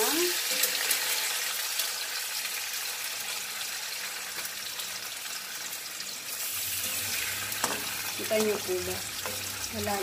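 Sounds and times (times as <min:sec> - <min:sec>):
tofu sizzling in a frying pan: 0:00.0 - 0:10.0
water boiling in a pan: 0:00.0 - 0:10.0.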